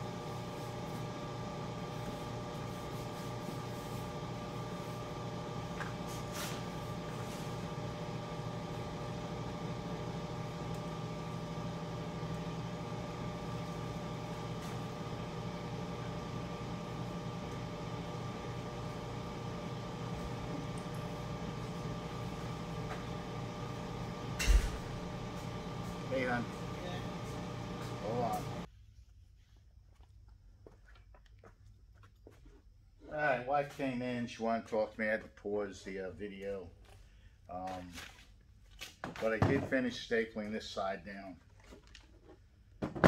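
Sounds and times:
machine hum: 0.0 - 28.7.

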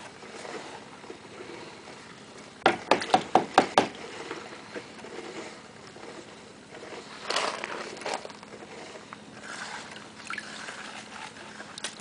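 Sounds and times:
water sloshing in a pan: 9.3 - 12.0.

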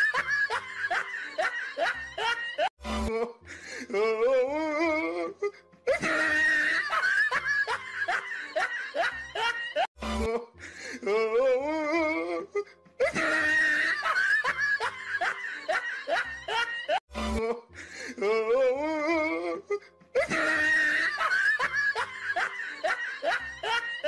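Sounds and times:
warbling comic laughter: 0.0 - 3.3, 5.9 - 10.4, 13.0 - 17.0, 20.2 - 24.0
music: 0.0 - 24.0.

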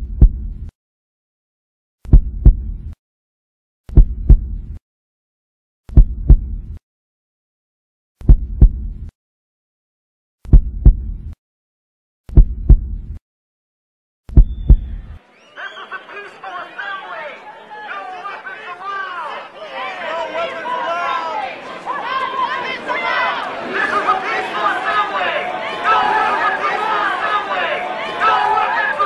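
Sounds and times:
heartbeat thumps: 0.0 - 0.7, 2.0 - 3.0, 3.9 - 4.8, 5.9 - 6.8, 8.2 - 9.1, 10.4 - 11.4, 12.3 - 13.2, 14.3 - 15.2
crowd chatter: 15.0 - 29.0.

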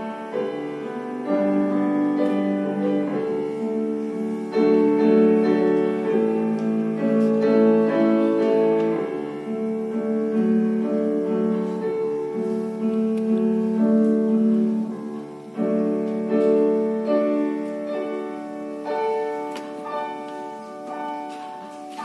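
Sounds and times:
slow solo piano: 0.0 - 22.0.

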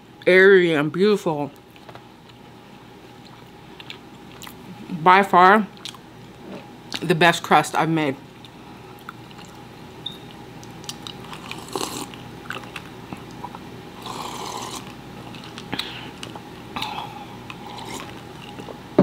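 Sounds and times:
chewing: 3.2 - 4.7, 5.8 - 7.0, 8.3 - 9.6, 10.3 - 18.8.

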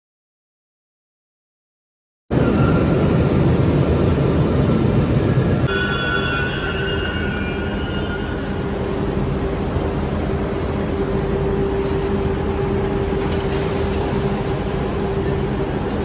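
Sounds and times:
train rumbling: 2.3 - 16.0
metallic wheel squeal: 5.7 - 8.7.

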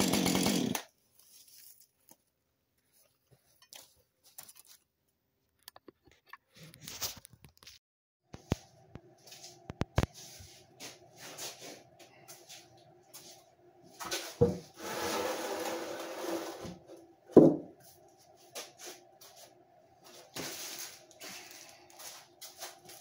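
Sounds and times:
handling knocks and rustles: 1.1 - 4.9
plank scraping on concrete: 14.8 - 16.8.

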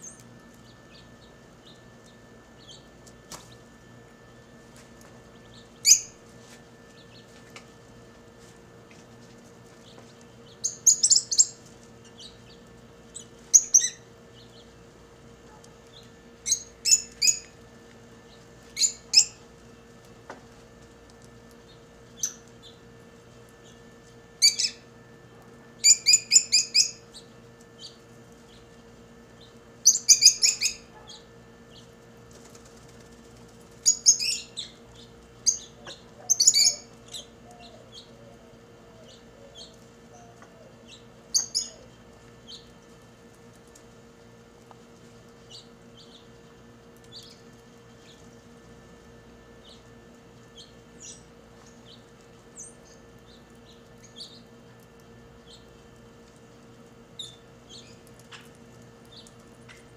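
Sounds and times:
lovebirds chirping: 33.8 - 42.7.

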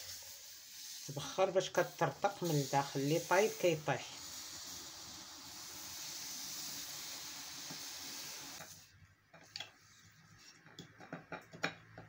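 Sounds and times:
hot stone hissing with steam: 0.0 - 8.9.

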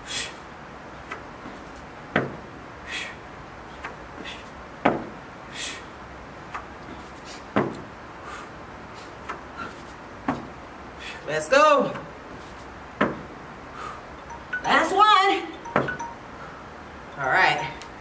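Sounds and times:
feet thudding on rubber floor: 1.5 - 2.4, 6.8 - 7.9, 9.6 - 10.6, 13.0 - 13.3
sharp breaths out: 2.8 - 3.2, 5.5 - 5.9, 8.2 - 9.8, 11.0 - 11.3, 13.7 - 14.1.

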